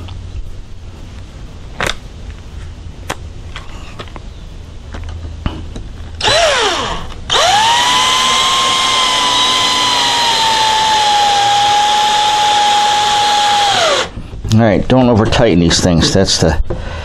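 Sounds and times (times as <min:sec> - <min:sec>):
cordless drill motor whine: 0:06.2 - 0:14.1.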